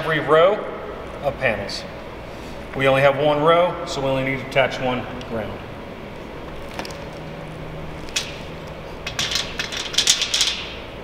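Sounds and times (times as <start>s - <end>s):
wire clicking on metal rail: 8.0s - 10.9s.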